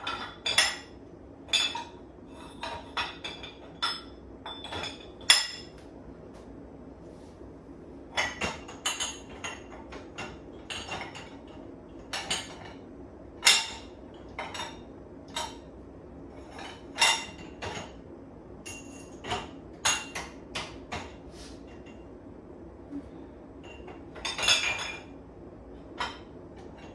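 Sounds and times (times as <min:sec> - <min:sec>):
dishes clinking in dishwasher rack: 0:00.0 - 0:05.8, 0:08.1 - 0:15.7, 0:16.3 - 0:18.0, 0:18.6 - 0:22.1, 0:23.6 - 0:25.2, 0:25.8 - 0:26.9.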